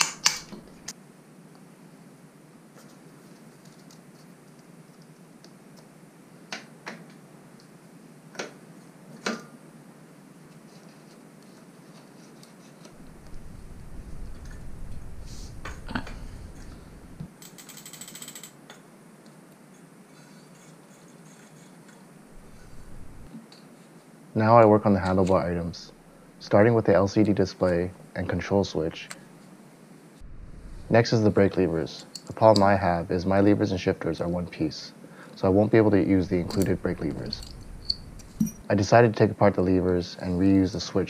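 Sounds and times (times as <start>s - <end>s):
low rumble: 13.0s - 17.3s, 22.3s - 23.3s, 30.2s - 31.6s, 36.0s - 38.6s.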